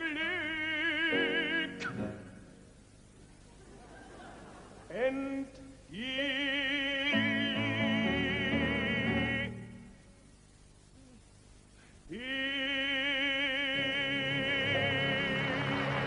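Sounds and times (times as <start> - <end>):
person singing with vibrato: 0.0 - 2.7, 4.9 - 10.3, 11.0 - 16.0
show music accompaniment: 14.1 - 16.0.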